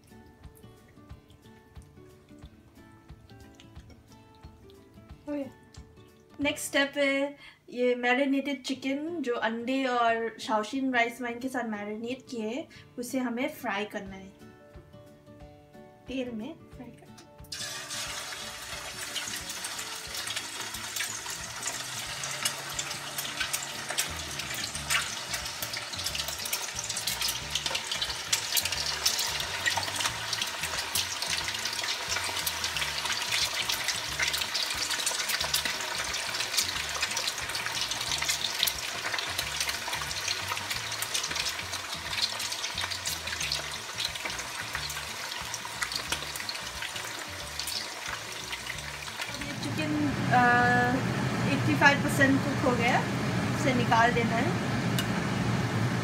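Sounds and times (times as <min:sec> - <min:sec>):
chicken frying in hot oil: 0:17.5 - 0:53.0.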